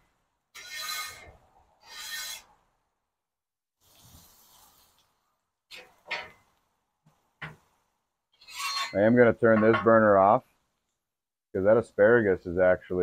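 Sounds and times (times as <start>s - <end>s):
metal spatula scraping griddle: 0.6s - 2.5s, 8.4s - 9.8s.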